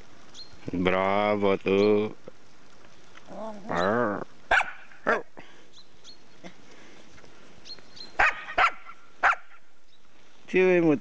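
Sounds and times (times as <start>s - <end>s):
puppy barking: 4.5s - 5.3s, 8.2s - 9.6s.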